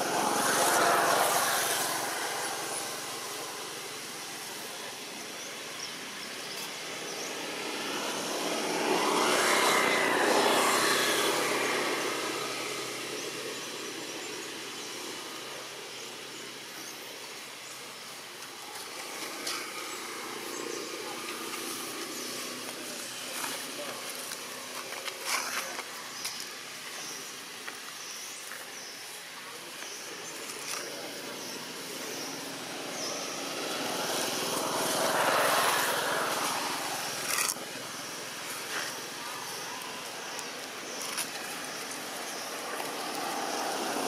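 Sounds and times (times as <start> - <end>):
passing vehicle engine rushing: 0.0 - 5.0, 6.7 - 15.8, 30.5 - 44.0
outdoor background noise: 0.0 - 44.0.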